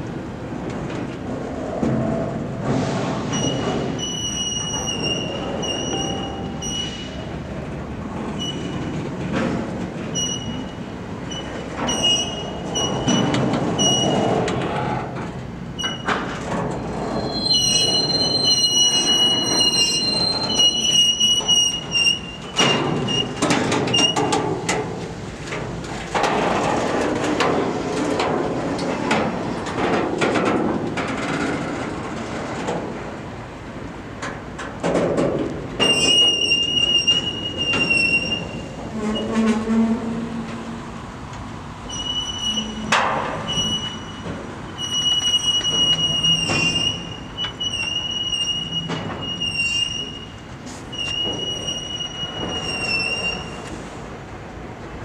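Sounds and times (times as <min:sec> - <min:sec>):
freight train wheels clattering: 0:00.0 - 0:55.0
high-pitched wheel squeal: 0:03.3 - 0:07.3, 0:08.4 - 0:09.0, 0:10.1 - 0:14.3, 0:16.9 - 0:24.2, 0:35.8 - 0:40.5, 0:41.9 - 0:53.7.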